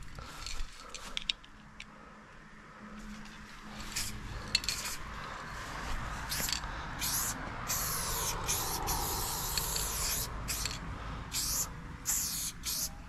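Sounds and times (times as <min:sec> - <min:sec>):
spray paint can hissing: 0:03.9 - 0:05.0, 0:06.3 - 0:13.0.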